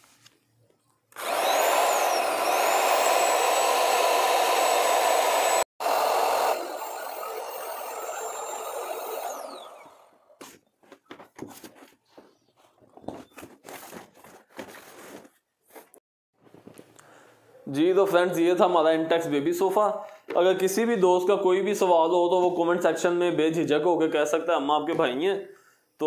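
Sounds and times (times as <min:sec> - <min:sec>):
electric air pump running: 0:01.2 - 0:10.5.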